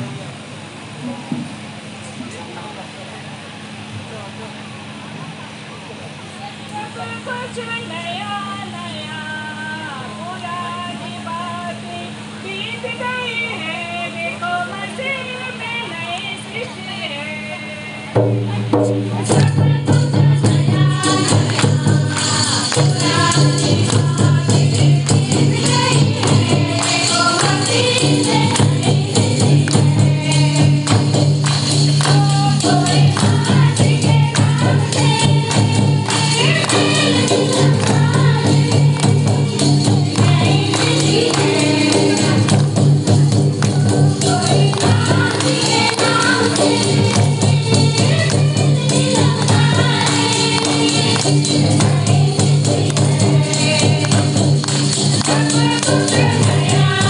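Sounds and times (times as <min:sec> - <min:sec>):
women singing: 0:06.8 - 0:57.0
barrel drums: 0:18.2 - 0:57.0
jingling percussion: 0:18.8 - 0:57.0.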